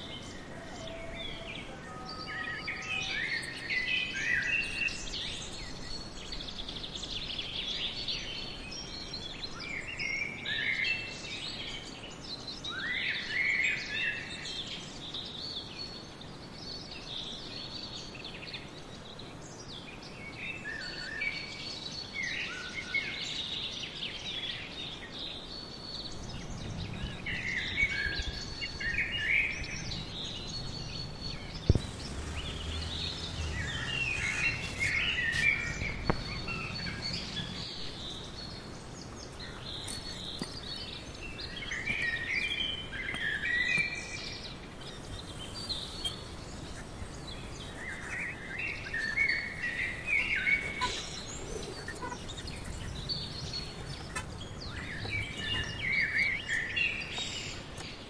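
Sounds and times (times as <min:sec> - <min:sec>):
small birds chirping: 0:00.0 - 0:10.0, 0:25.5 - 0:58.0
outdoor background hiss: 0:00.0 - 0:58.0.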